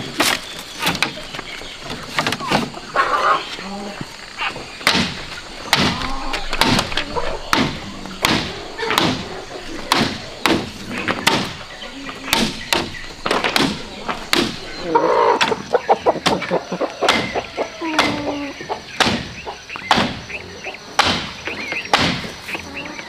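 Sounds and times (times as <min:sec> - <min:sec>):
machete striking bamboo: 0:04.8 - 0:09.3, 0:09.9 - 0:11.6, 0:12.3 - 0:14.6, 0:19.0 - 0:20.2, 0:21.0 - 0:21.3, 0:21.9 - 0:22.3.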